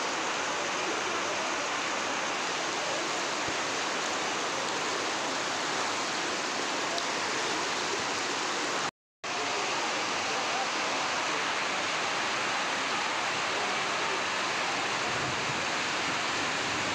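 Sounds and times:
torrential rain and floodwater: 0:00.0 - 0:16.9.

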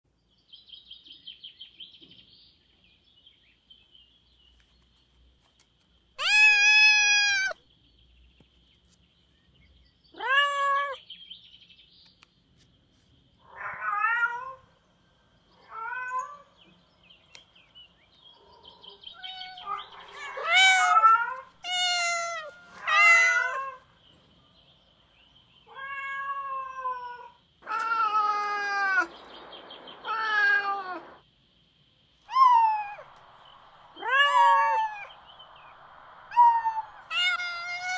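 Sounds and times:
faint high chirping: 0:00.6 - 0:37.9
cats meowing: 0:06.2 - 0:07.6, 0:10.2 - 0:11.0, 0:13.5 - 0:14.7, 0:15.6 - 0:16.5, 0:18.9 - 0:23.9, 0:25.7 - 0:31.2, 0:32.3 - 0:33.2, 0:33.9 - 0:35.2, 0:36.3 - 0:37.9.

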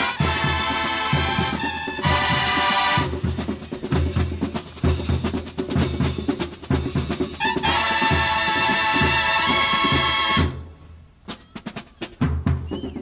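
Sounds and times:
bugles holding a chord: 0:00.0 - 0:03.3, 0:07.4 - 0:10.6
snare and bass drums: 0:00.0 - 0:13.0.

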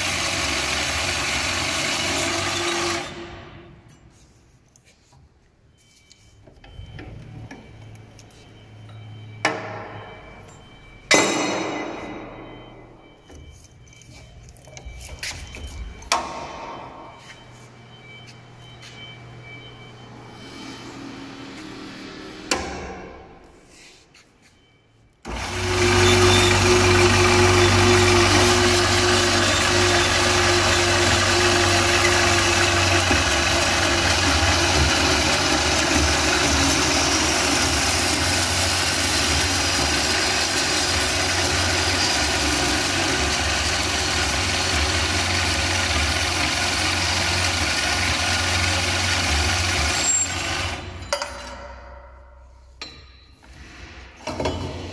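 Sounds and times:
band saw cutting metal: 0:00.0 - 0:03.4, 0:25.3 - 0:51.0.

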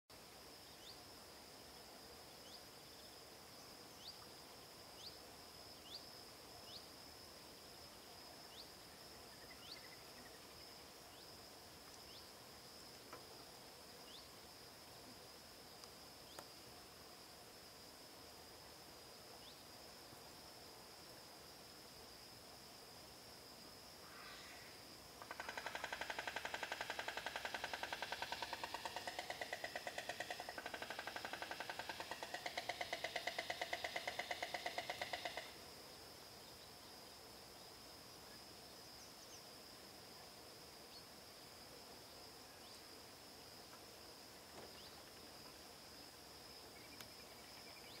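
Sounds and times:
frog trilling: 0:25.2 - 0:35.6.

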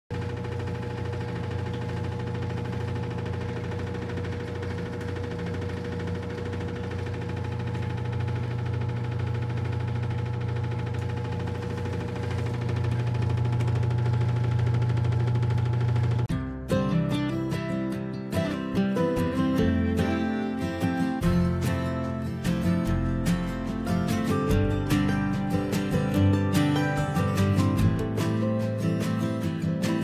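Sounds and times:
motor humming: 0:00.2 - 0:16.3.

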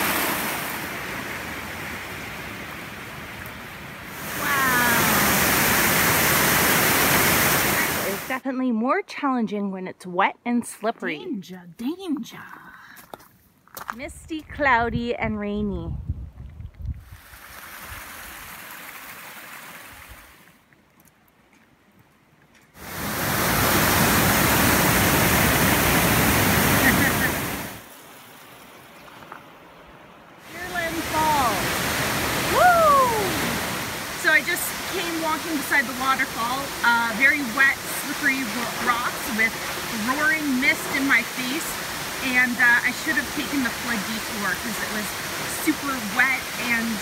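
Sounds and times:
stream rushing over rocks: 0:00.0 - 0:08.4, 0:22.8 - 0:47.0
waterfall roar: 0:00.0 - 0:08.4, 0:22.8 - 0:27.9, 0:30.4 - 0:47.0.

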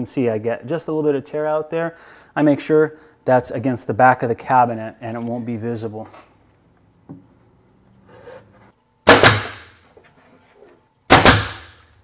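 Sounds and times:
nail gun firing: 0:09.0 - 0:09.8, 0:11.1 - 0:11.9.

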